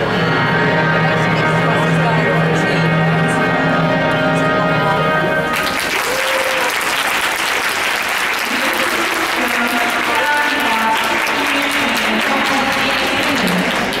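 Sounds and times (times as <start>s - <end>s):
audience applauding: 5.5s - 14.0s.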